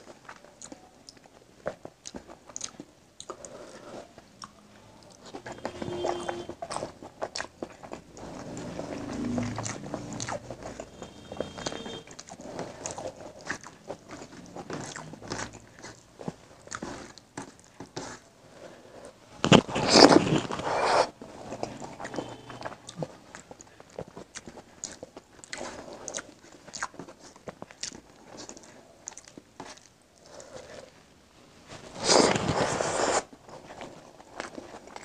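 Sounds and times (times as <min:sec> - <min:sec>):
chewing and wet mouth clicks: 0:00.2 - 0:03.6, 0:04.4 - 0:18.2, 0:21.5 - 0:29.9.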